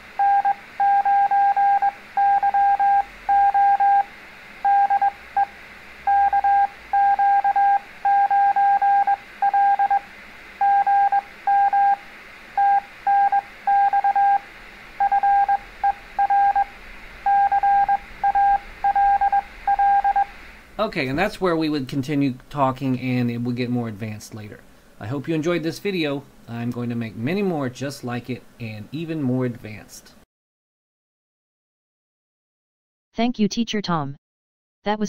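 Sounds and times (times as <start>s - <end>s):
morse code beeps: 0.2s - 4.0s, 4.7s - 5.5s, 6.1s - 10.0s, 10.6s - 12.0s, 12.6s - 14.4s, 15.0s - 16.7s, 17.3s - 20.3s.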